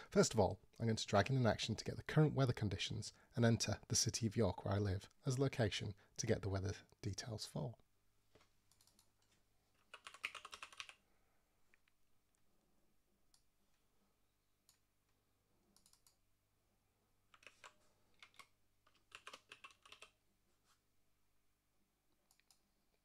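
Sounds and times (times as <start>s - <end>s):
keyboard typing: 8.7s - 11.0s, 15.8s - 16.2s, 17.3s - 20.2s.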